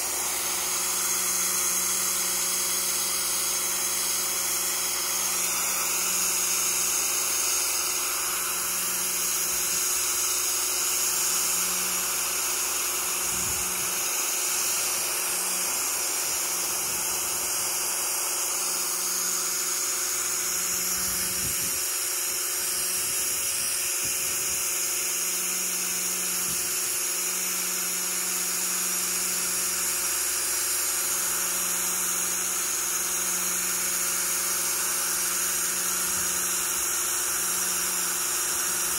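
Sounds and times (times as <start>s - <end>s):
high-pressure water jet hissing: 0.0s - 38.9s
pressure washer pump humming: 0.0s - 38.9s.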